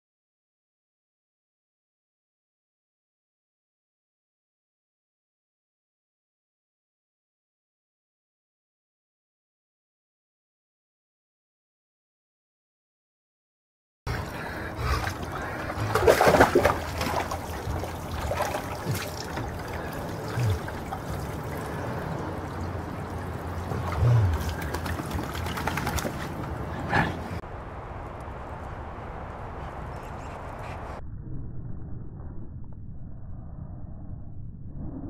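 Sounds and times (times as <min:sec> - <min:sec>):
water splashing in a wading pool: 0:14.1 - 0:27.4
outdoor background noise: 0:14.1 - 0:35.0.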